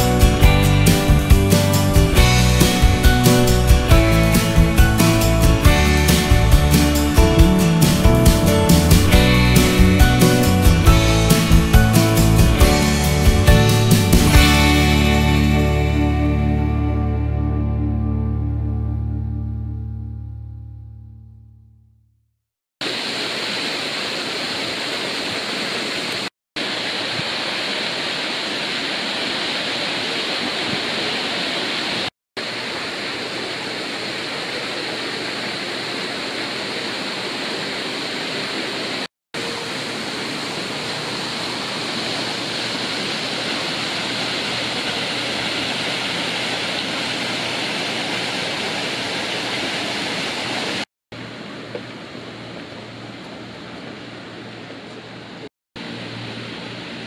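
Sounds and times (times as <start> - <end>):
rushing water: 0.0 - 16.1, 22.8 - 57.0.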